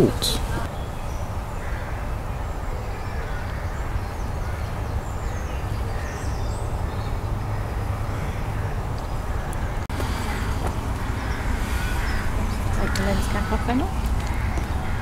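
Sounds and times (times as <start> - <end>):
birds chirping: 0.0 - 15.0
wind buffeting microphone: 3.4 - 15.0.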